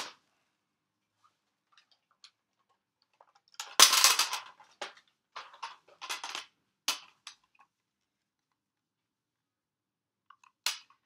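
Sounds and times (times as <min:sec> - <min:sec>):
hard plastic toys clattering: 0:01.7 - 0:07.7.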